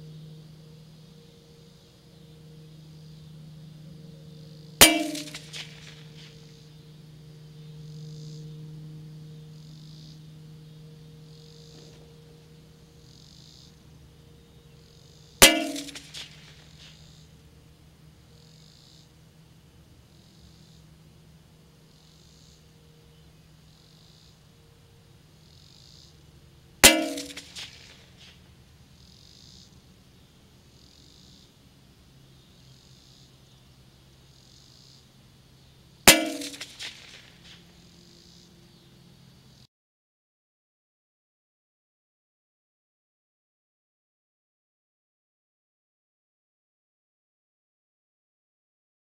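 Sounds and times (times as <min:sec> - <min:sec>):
rifle shot metallic clang: 0:04.8 - 0:06.3, 0:15.4 - 0:16.7, 0:26.8 - 0:28.0, 0:36.1 - 0:37.3.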